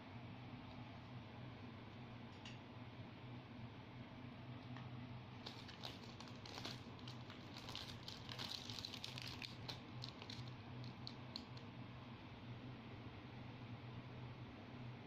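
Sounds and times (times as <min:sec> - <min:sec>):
low steady hum: 0:00.0 - 0:15.0
plastic packaging crinkling: 0:05.4 - 0:11.6.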